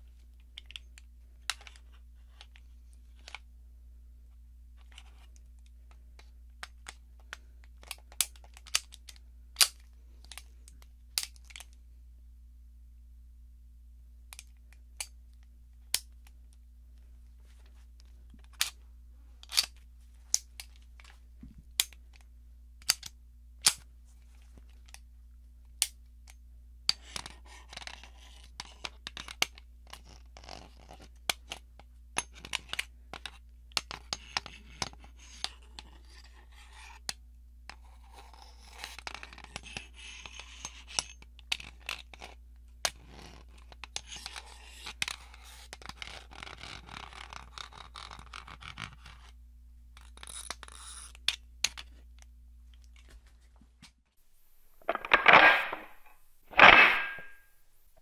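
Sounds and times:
metal scraping and rubbing: 0:54.8 - 0:57.5.

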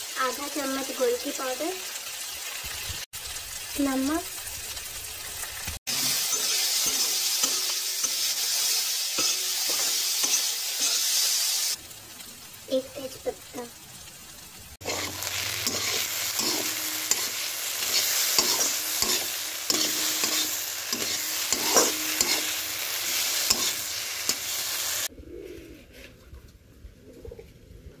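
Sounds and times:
food sizzling in a pan: 0:00.0 - 0:25.1
spatula scraping a pan: 0:05.9 - 0:11.4, 0:14.8 - 0:25.1.

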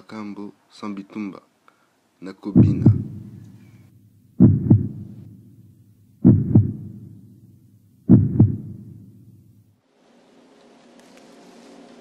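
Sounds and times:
heartbeat thumps: 0:02.6 - 0:09.6.

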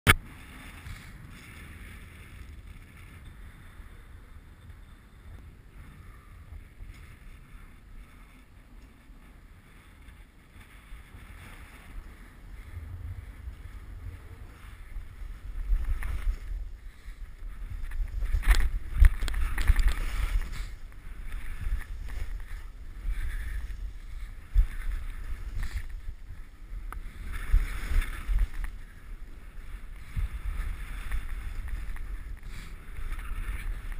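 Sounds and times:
wind rumbling on microphone: 0:00.1 - 0:33.9
skis hissing over snow: 0:13.8 - 0:26.2, 0:27.0 - 0:33.9.

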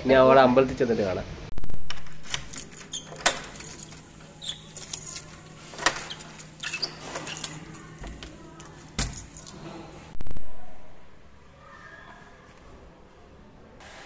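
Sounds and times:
door lock clicking: 0:01.9 - 0:03.8
keys jangling: 0:02.0 - 0:09.8.

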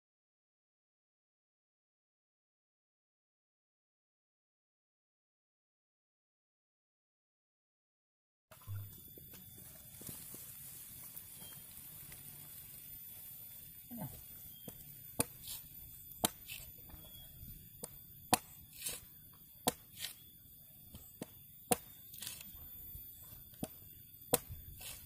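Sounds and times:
machete chopping coconut husk: 0:14.6 - 0:16.9, 0:17.8 - 0:20.3, 0:20.9 - 0:22.6, 0:23.3 - 0:25.0.

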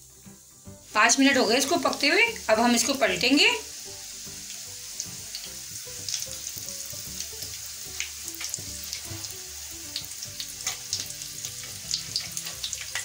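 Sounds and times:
fish frying in oil: 0:00.0 - 0:13.0
small crackles and pops: 0:10.6 - 0:13.0.

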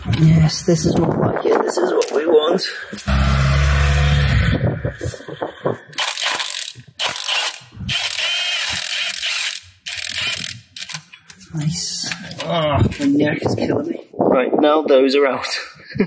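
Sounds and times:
impact wrench bursts: 0:03.0 - 0:04.5, 0:06.0 - 0:11.0.

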